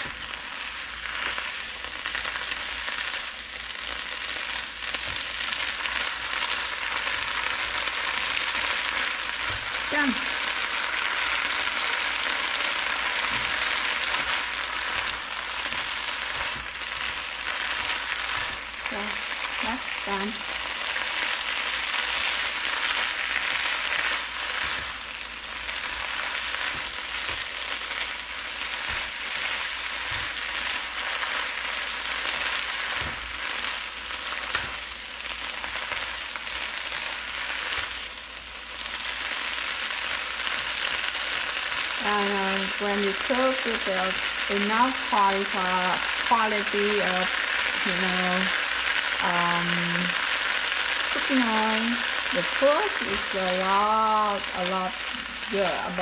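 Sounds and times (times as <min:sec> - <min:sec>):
greens sizzling in a wok: 0:00.0 - 0:56.0
chopsticks tapping a pan: 0:23.0 - 0:36.3.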